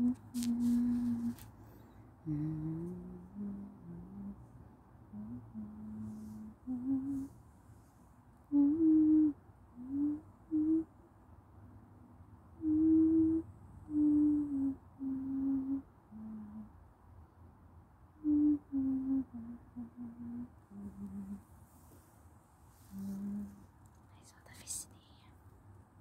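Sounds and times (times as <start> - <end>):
person humming: 0.0 - 1.4, 2.2 - 4.4, 5.1 - 7.3, 8.5 - 10.9, 12.6 - 16.7, 18.2 - 21.4, 22.9 - 23.7.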